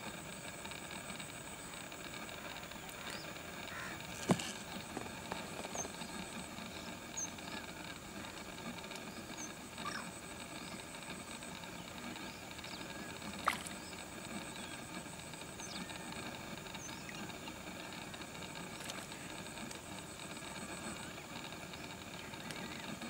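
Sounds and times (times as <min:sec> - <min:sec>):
low background hiss: 0:00.0 - 0:23.0
faint high-pitched chirps: 0:09.1 - 0:14.9.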